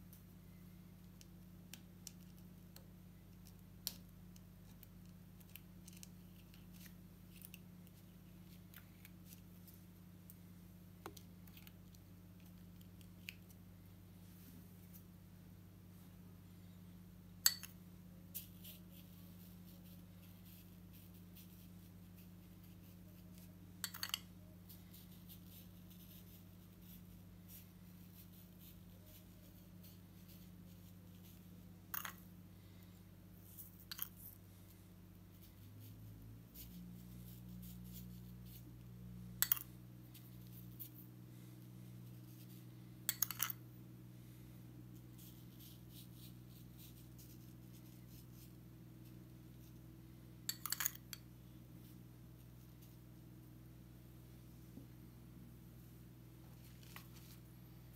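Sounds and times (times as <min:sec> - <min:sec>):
steady low hum: 0:00.0 - 0:57.9
metal spoon clinking on ceramic bowl: 0:17.4 - 0:17.8, 0:23.8 - 0:24.3, 0:43.1 - 0:43.6, 0:50.5 - 0:51.2.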